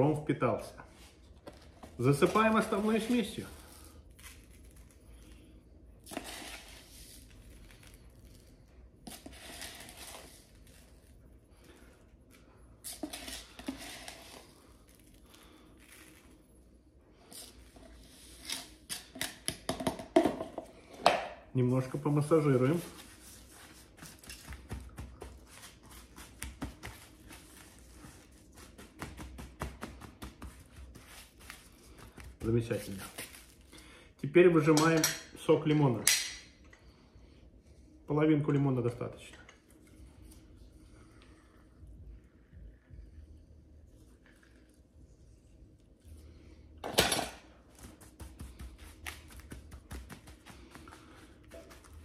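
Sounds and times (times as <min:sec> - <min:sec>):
spoon scraping dry spice: 0:06.0 - 0:07.4, 0:09.0 - 0:10.6, 0:12.9 - 0:14.5.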